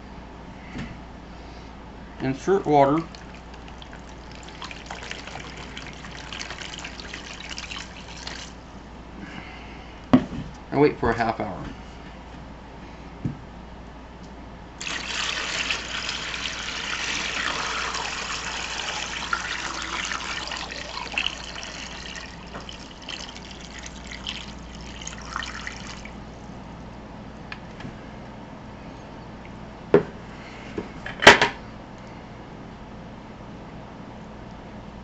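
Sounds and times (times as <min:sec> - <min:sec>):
water pouring into plastic tub: 0:02.7 - 0:08.6, 0:14.8 - 0:26.2.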